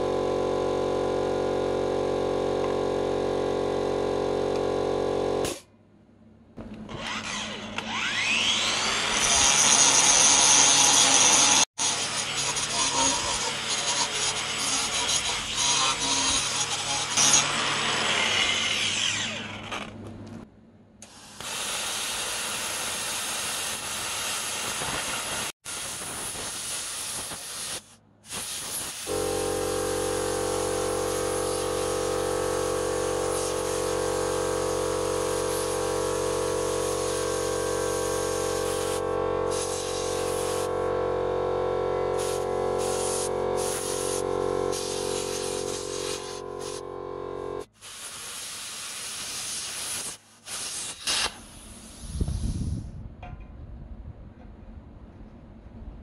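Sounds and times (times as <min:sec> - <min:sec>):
machine hum with several tones: 0:00.0 - 0:09.1, 0:29.1 - 0:47.7
angle grinder spinning down: 0:06.9 - 0:20.0
plasma cutter hissing: 0:21.0 - 0:32.0, 0:32.6 - 0:40.7, 0:42.2 - 0:46.8, 0:47.7 - 0:52.9.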